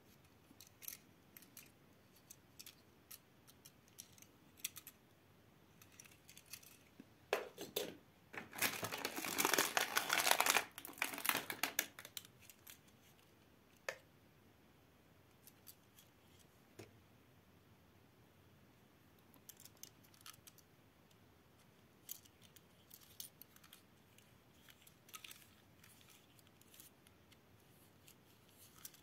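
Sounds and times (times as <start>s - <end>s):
plastic packaging crinkling: 8.4s - 12.8s.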